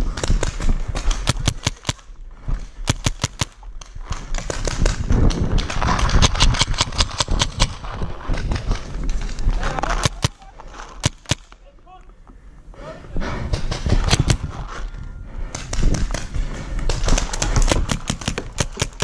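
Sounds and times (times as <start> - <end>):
paintball markers firing: 0.0 - 2.1, 2.8 - 11.6, 13.5 - 14.6, 15.5 - 19.0
rumble of handling and running: 0.0 - 19.0.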